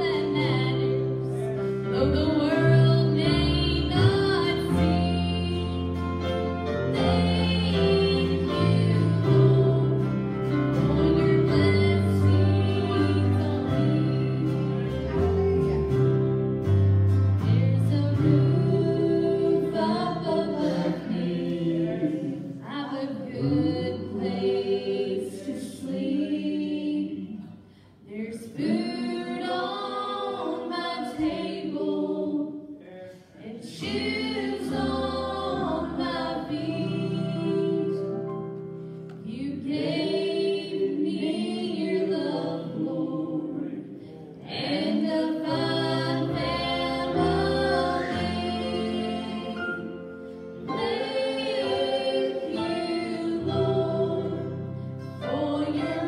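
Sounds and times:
group singing gospel song: 0.0s - 15.6s, 17.4s - 56.0s
church praise band: 0.0s - 56.0s.

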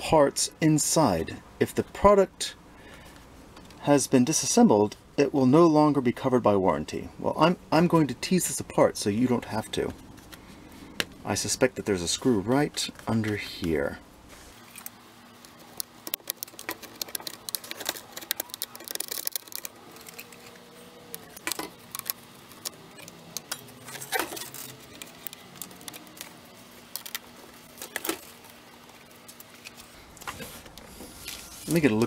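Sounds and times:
faint steady hum: 0.0s - 32.0s.

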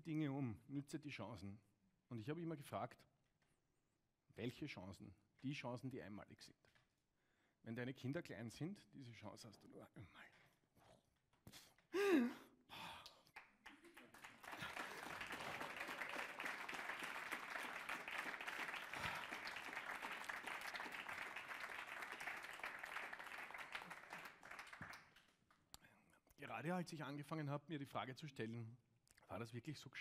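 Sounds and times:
person sighing: 11.9s - 13.2s
audience applauding: 13.3s - 25.3s.

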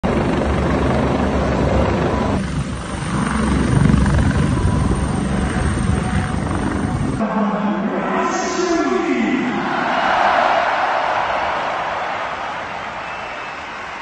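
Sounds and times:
helicopter rotor beating: 0.0s - 7.2s.

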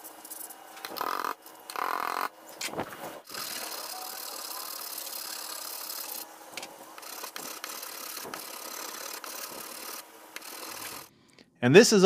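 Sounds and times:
metal file scraping steel: 7.0s - 11.1s.

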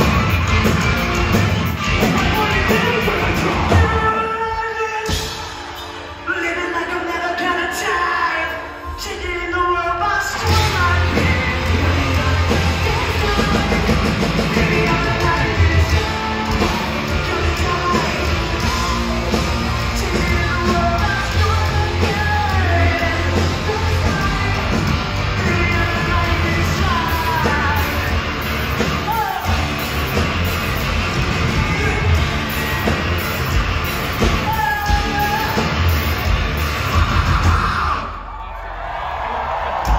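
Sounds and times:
live rock band playing: 0.0s - 38.0s
lead vocalist singing: 2.0s - 29.7s.

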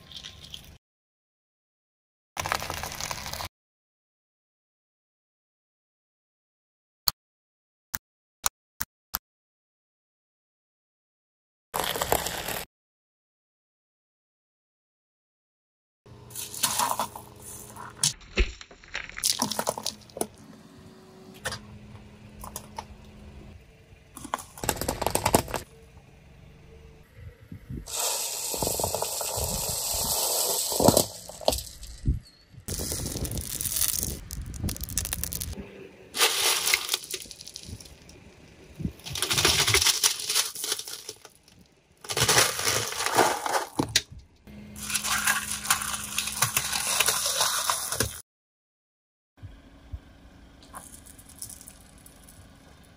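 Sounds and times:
objects crushed under car tyres: 18.2s - 20.3s, 24.2s - 25.7s, 28.5s - 31.9s, 32.7s - 35.6s, 36.2s - 38.2s, 38.9s - 44.0s, 44.8s - 48.2s.

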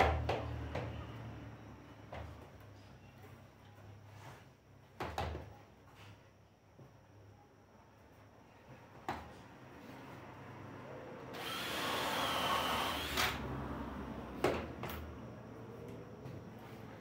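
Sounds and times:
cordless drill driving a screw: 11.3s - 13.4s.

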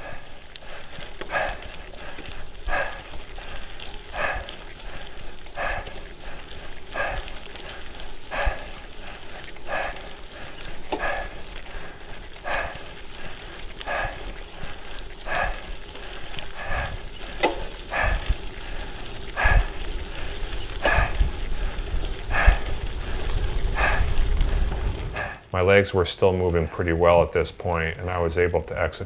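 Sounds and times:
person breathing hard: 0.0s - 25.5s
wind rumble on microphone: 17.9s - 25.4s.

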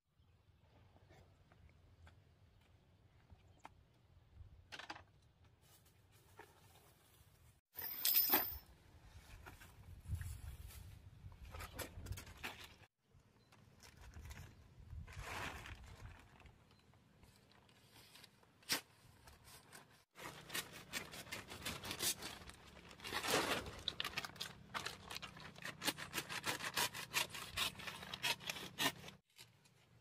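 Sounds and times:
plastic tarp crinkling: 13.8s - 16.8s, 20.2s - 26.1s.

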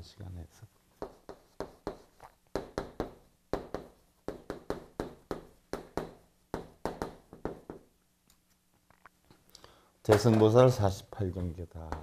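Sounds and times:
chalk tapping on chalkboard: 1.0s - 7.9s.

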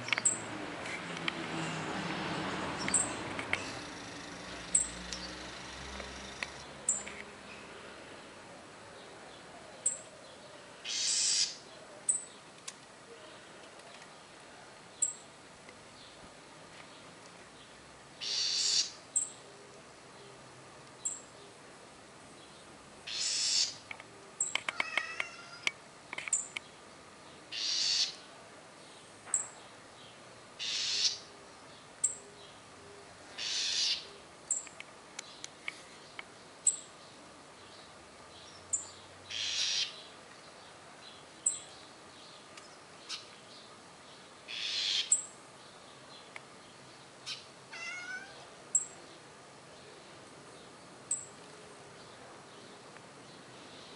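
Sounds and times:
bird harsh rasping call: 10.8s - 11.6s, 18.2s - 19.0s, 23.1s - 23.8s, 27.5s - 28.2s, 30.6s - 31.2s, 33.4s - 34.1s, 39.3s - 40.0s, 44.5s - 45.2s, 47.2s - 48.9s.

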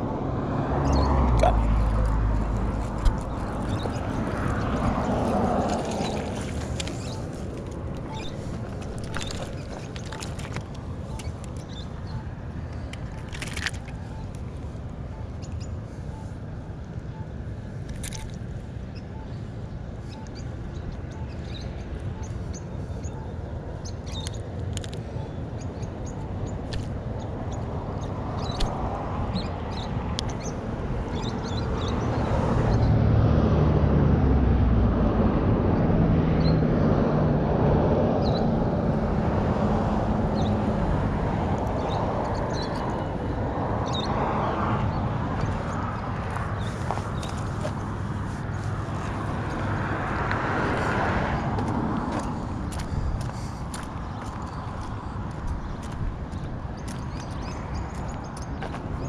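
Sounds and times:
steady low rumble: 1.0s - 32.0s, 44.8s - 59.0s.

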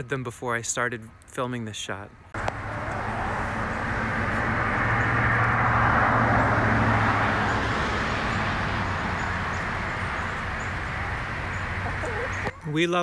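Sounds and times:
car passing: 2.4s - 12.5s.

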